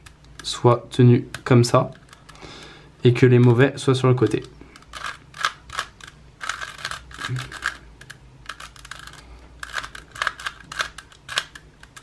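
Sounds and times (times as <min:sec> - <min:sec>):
puzzle cube plastic clicks: 0:04.3 - 0:12.0.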